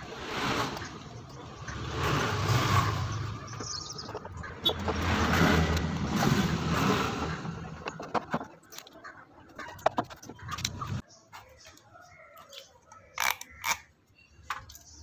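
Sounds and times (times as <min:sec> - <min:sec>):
vehicle engine rumbling past: 0:00.0 - 0:08.2.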